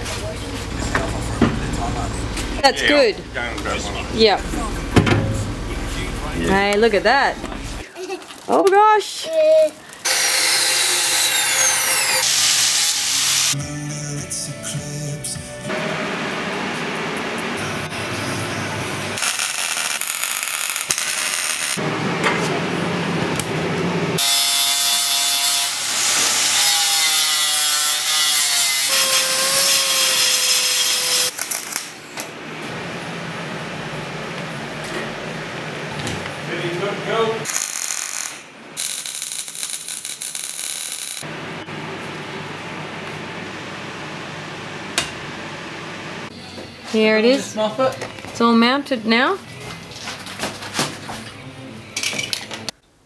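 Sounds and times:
welding crackle: 19.2 - 21.8, 30.5 - 32.0, 37.4 - 41.3.

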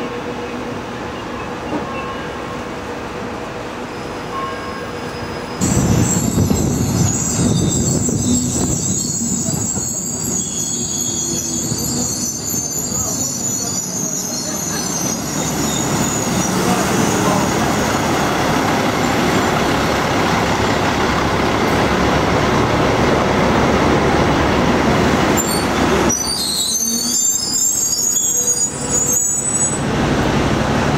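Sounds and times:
train rumble: 0.0 - 30.9
high-pitched squealing: 5.4 - 17.6.

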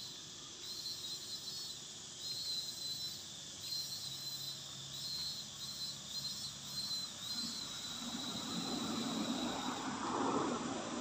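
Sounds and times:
insects chirring: 0.0 - 11.0
passing vehicle: 7.4 - 11.0.

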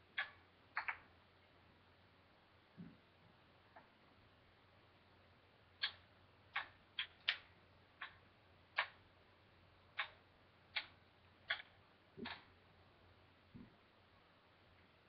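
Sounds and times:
wooden ball clacking: 0.2 - 1.1.

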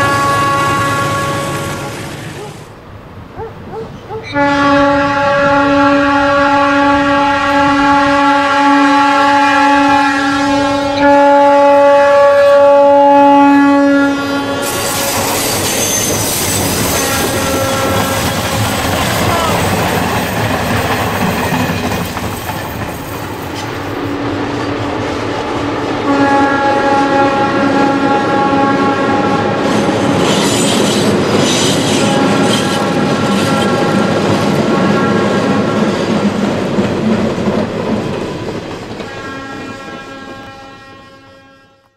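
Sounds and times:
locomotive air horn blasts: 0.0 - 2.2, 4.3 - 15.5, 16.9 - 18.6, 26.0 - 29.7, 31.8 - 35.9, 39.0 - 41.9
train wheels rumbling and clattering: 14.3 - 27.1, 29.1 - 40.8
high wheel squeal: 14.6 - 19.6.

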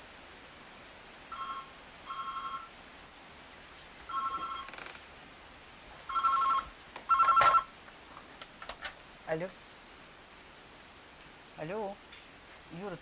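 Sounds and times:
telephone ringing two-tone trill: 1.3 - 2.7, 4.1 - 4.7, 6.1 - 7.7.

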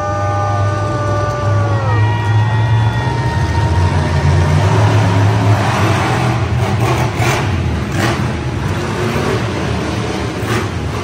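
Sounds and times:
truck engine rumbling: 0.0 - 11.0.

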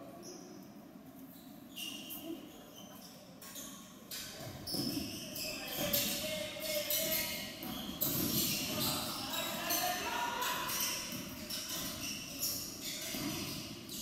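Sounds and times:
basketball bouncing: 7.6 - 8.8.

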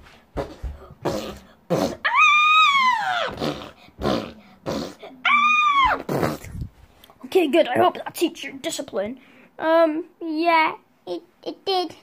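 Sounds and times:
squeaky voice screaming: 2.0 - 3.4, 5.2 - 6.1.

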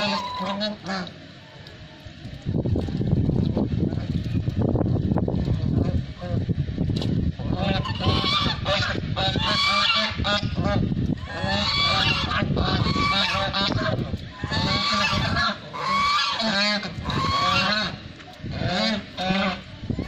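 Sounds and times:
ducks calling loudly: 0.0 - 1.2, 7.4 - 20.0.

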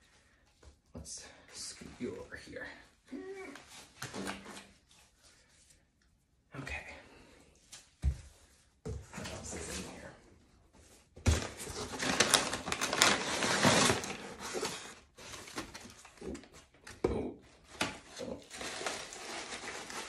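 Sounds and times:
paper rustling and crinkling: 11.2 - 16.8, 17.6 - 20.0.

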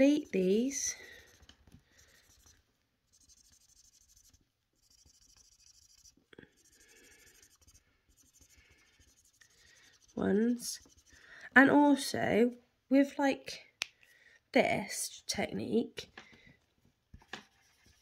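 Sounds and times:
marker scribbling on paper: 0.0 - 11.2.

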